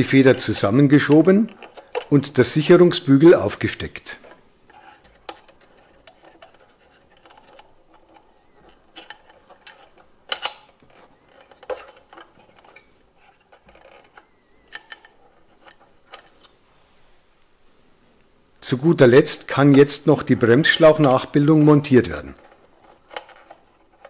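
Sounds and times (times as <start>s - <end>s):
small clicks and scrapes of parts: 0.3s - 2.8s, 4.0s - 16.6s, 20.6s - 24.0s.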